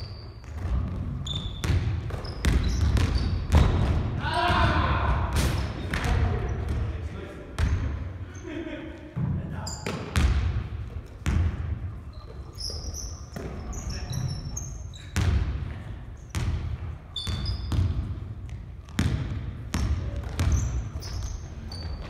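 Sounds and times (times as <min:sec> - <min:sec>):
sneakers squeaking on floor: 0:00.0 - 0:04.8, 0:05.4 - 0:22.0
basketball bouncing on wooden floor: 0:00.4 - 0:05.0, 0:09.9 - 0:11.8, 0:13.3 - 0:13.7, 0:15.2 - 0:22.0.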